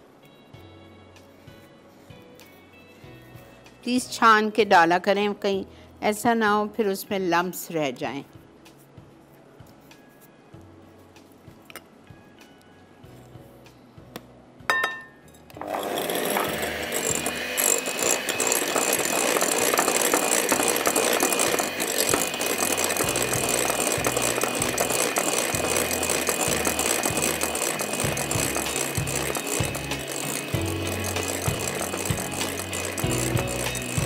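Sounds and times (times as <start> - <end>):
electric hand mixer whining: 15.6 - 34.0.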